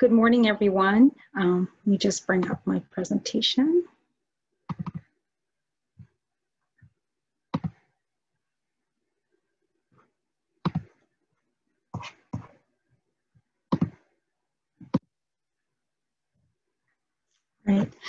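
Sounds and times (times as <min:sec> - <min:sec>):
computer clicks and knocks: 0:04.7 - 0:05.1.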